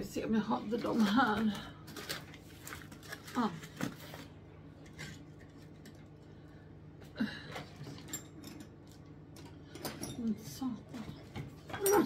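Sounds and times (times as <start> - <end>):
packaging rustling and clicking: 0.8 - 4.4.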